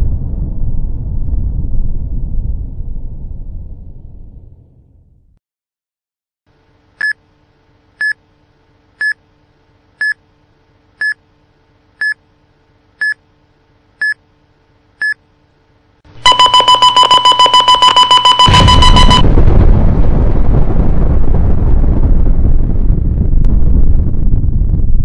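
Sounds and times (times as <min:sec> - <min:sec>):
faint steady hum: 0:06.5 - 0:22.1
fast-repeating alarm beep: 0:16.2 - 0:19.2
short high countdown beeps: 0:16.2 - 0:19.2.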